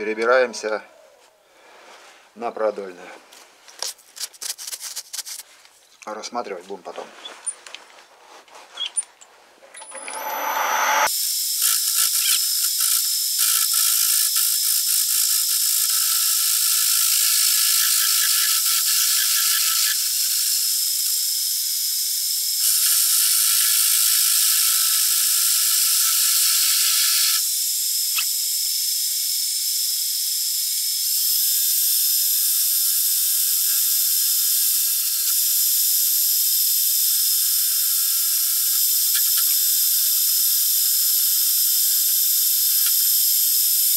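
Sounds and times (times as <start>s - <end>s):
metal lathe cutting aluminium: 9.8s - 11.1s.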